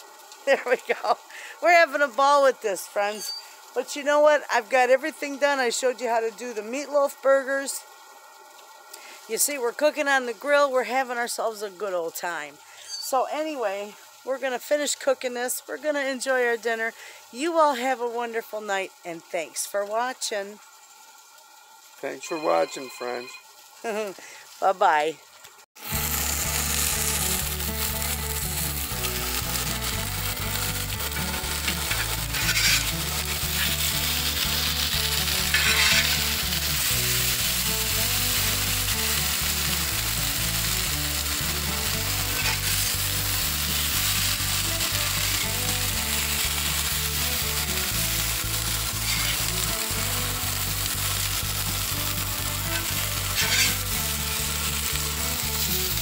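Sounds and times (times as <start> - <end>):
vegetables sizzling on griddle: 0.0 - 56.0
metal spatula scraping: 30.5 - 36.9, 42.2 - 43.0, 45.0 - 45.6, 48.9 - 49.6, 52.6 - 54.0.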